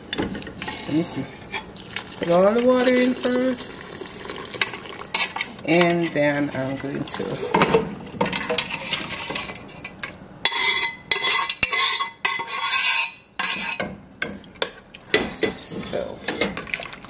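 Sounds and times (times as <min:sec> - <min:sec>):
spoon stirring in a pot: 0:00.1 - 0:17.0
spoon scraping a steel bowl: 0:10.4 - 0:13.9.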